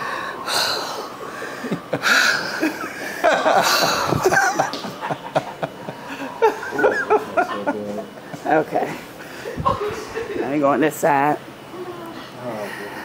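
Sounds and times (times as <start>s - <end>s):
people laughing: 0.5s - 10.5s.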